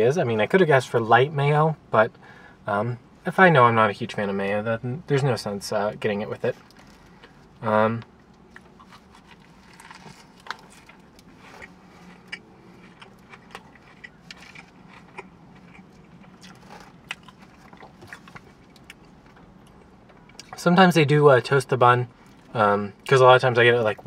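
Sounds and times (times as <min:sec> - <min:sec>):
person chewing food: 0:08.3 - 0:20.6.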